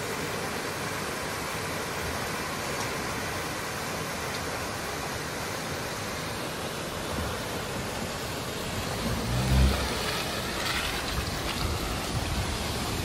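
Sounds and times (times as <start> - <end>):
waterfall rushing: 0.0 - 13.0
car engine pulling uphill: 6.8 - 13.0.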